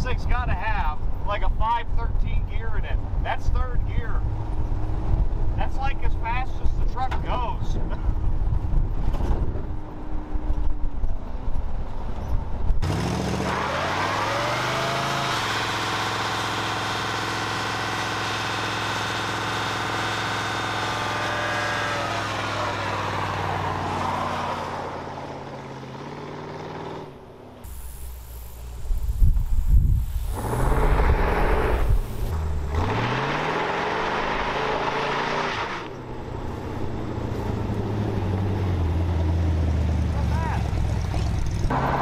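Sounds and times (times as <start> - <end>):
truck engine rumbling and revving: 0.0 - 42.0.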